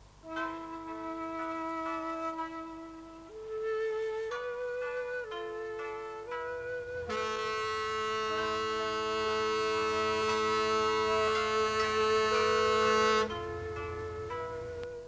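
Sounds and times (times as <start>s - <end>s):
reedy held chord: 0.0s - 15.0s
low drone: 6.7s - 15.0s.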